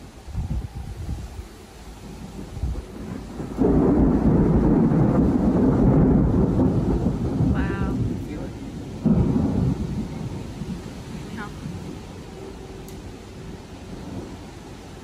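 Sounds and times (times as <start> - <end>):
thunder rumbling: 0.0 - 15.0.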